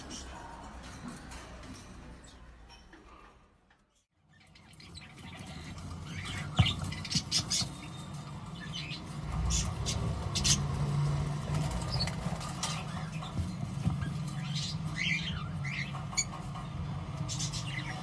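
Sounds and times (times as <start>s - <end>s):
parakeet chicks chirping: 4.0s - 18.0s.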